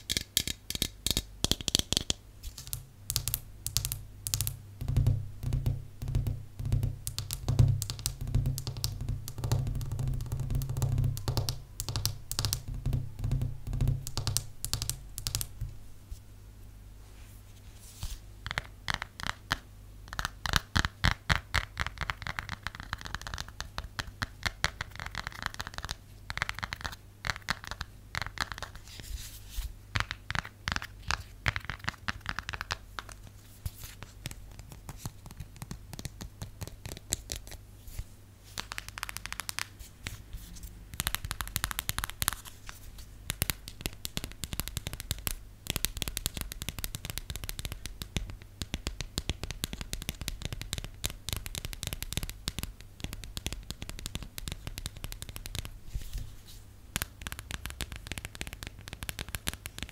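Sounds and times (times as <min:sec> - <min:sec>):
nails tapping on plastic bottle: 0:00.0 - 0:15.6
nails clicking on phone case: 0:18.4 - 0:28.8, 0:30.0 - 0:33.2, 0:38.6 - 0:39.7, 0:41.0 - 0:42.6, 0:43.3 - 0:55.7, 0:56.9 - 0:59.9.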